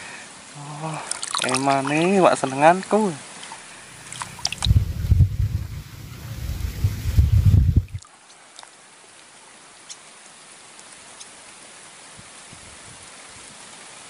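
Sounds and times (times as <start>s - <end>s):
quiet outdoor hiss: 0.0s - 12.5s
wind buffeting microphone: 3.9s - 8.0s.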